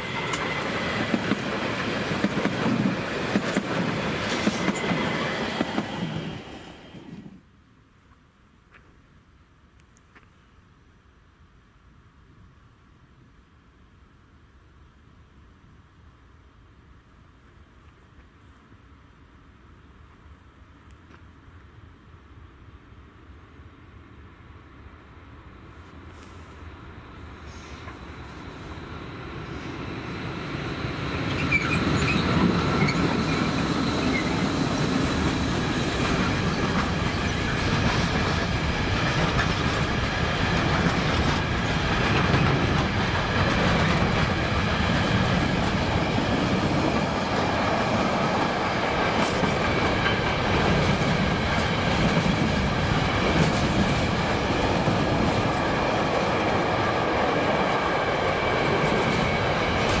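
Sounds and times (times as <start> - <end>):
train wheels rumbling on rails: 0.0 - 7.4, 27.0 - 60.0.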